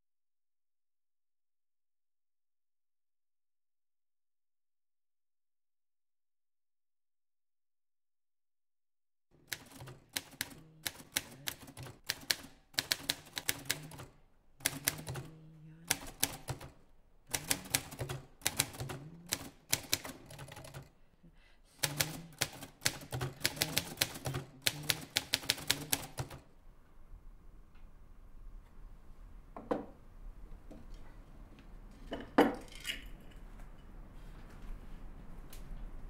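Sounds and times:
typewriter key strikes: 9.5 - 16.7, 17.3 - 20.8, 21.8 - 26.4.

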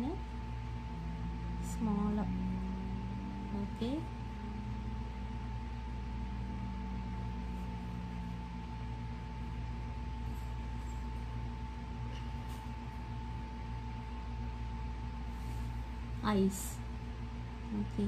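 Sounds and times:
background hum: 0.0 - 18.0
thin high whine: 0.0 - 18.0.

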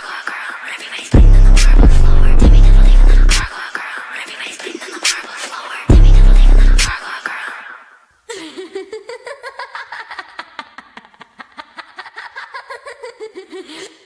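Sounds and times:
woman laughing high-pitched: 8.3 - 14.0.

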